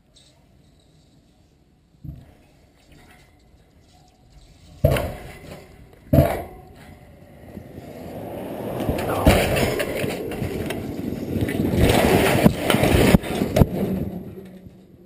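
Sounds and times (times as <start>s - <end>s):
rushing clatter of collapsing mast: 7.8s - 14.8s.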